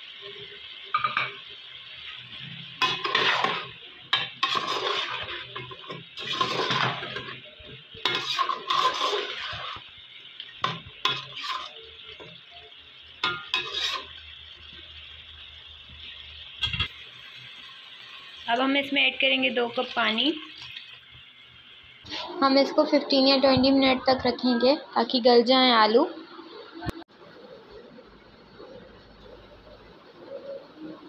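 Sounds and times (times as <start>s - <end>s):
metal spoon scraping a pot: 2.8s - 9.8s, 10.6s - 12.4s, 13.2s - 14.2s.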